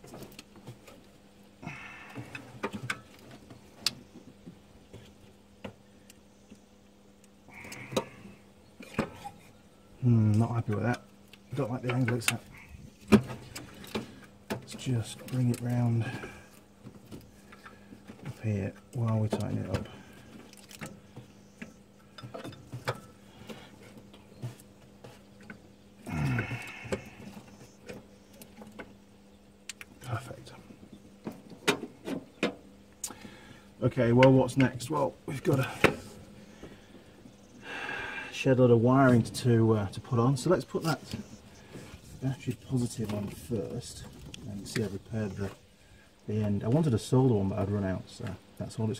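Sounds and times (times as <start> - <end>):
faint steady hum: 0.0 - 48.9.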